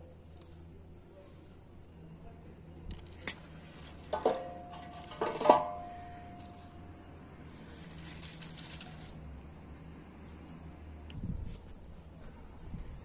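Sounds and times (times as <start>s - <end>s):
metallic clank of brazier: 4.1s - 6.2s
pine cones rustling: 7.4s - 9.5s.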